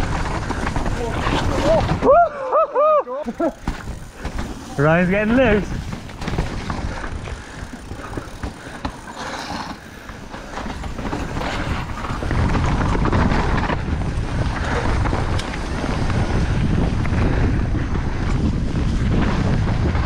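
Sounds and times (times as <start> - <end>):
bike clattering: 0.0 - 2.4, 3.1 - 20.0
bike tyres running over mud: 0.0 - 20.0
wind buffeting microphone: 3.3 - 9.1, 9.9 - 20.0.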